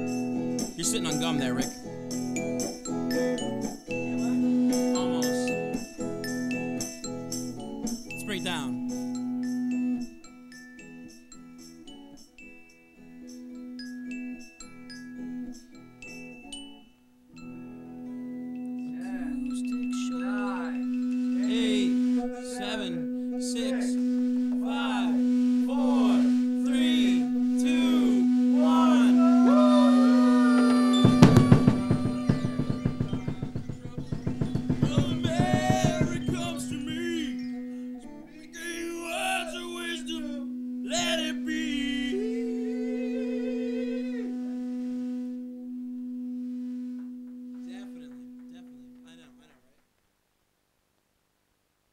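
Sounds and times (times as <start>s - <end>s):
held instrument tone: 0.0s - 11.0s, 17.4s - 49.3s
faint voices: 18.9s - 37.4s
sustained drone note: 18.9s - 38.1s, 39.1s - 49.2s
swooping pitch slides: 19.1s - 37.7s.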